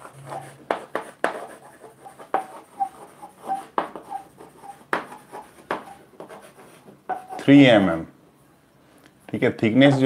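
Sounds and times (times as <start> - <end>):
chalk writing on blackboard: 0.0 - 7.5.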